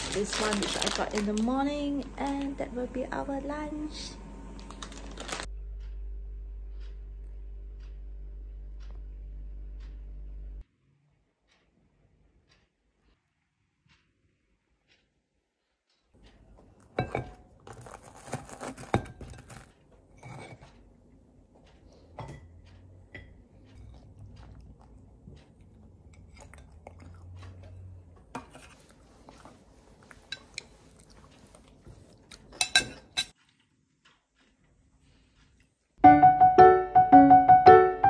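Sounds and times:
cutlery clinking on a plate: 17.0 - 17.4, 18.8 - 20.8, 32.5 - 33.4
chewing: 21.6 - 32.7, 33.3 - 36.0.

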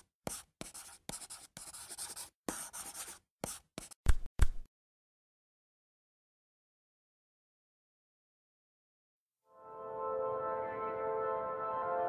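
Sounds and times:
pen scratching on paper: 0.0 - 4.0.

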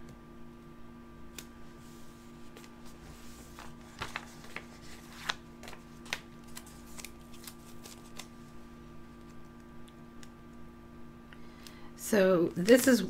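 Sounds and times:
paper rustling: 2.0 - 8.4.

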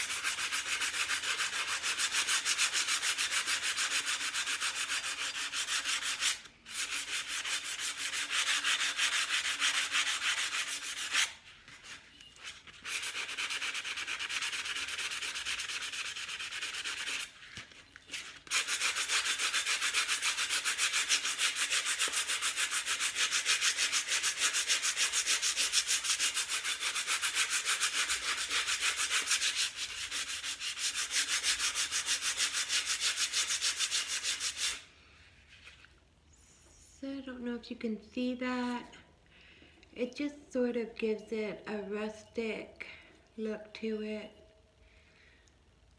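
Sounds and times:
sanding sponge rasping on glass: 0.0 - 11.4, 12.8 - 17.3, 18.5 - 34.8.

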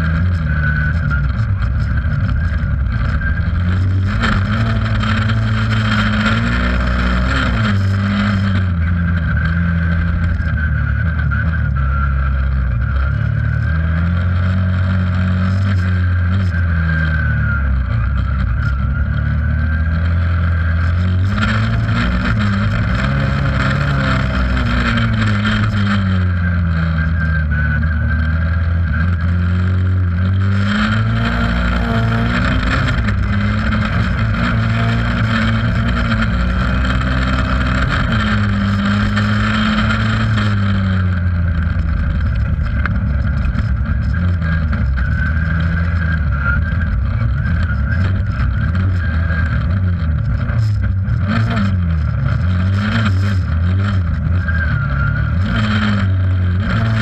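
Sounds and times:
race car engine revving: 0.0 - 57.0.

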